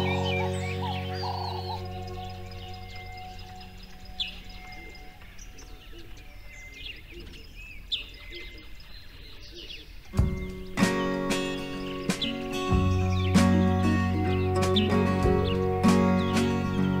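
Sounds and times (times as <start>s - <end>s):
loud music: 0.0s - 2.8s, 10.2s - 17.0s
small birds chirping: 0.0s - 17.0s.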